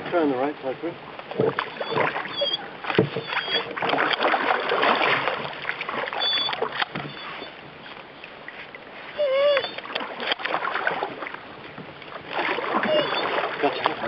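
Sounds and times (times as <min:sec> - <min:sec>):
water splashing around paddle: 0:00.0 - 0:14.0
knocks against canoe: 0:01.2 - 0:02.2, 0:02.8 - 0:05.6, 0:06.4 - 0:07.3.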